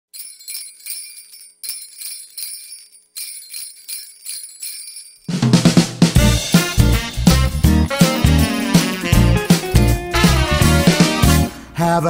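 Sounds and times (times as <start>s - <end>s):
sleigh bells shaken: 0.1s - 5.6s
pop band playing: 5.4s - 12.0s.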